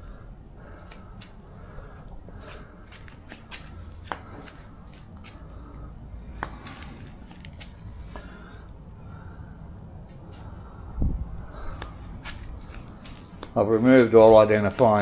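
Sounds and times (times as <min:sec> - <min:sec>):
distant traffic rumble: 0:00.0 - 0:15.0.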